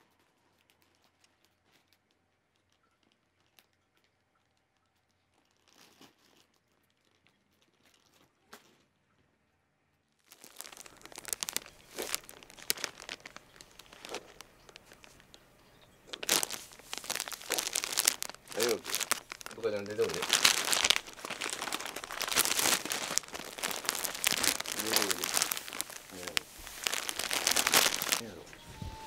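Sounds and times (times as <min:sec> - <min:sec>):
plastic wrapping crinkling: 0:00.0 - 0:08.8, 0:10.3 - 0:29.0.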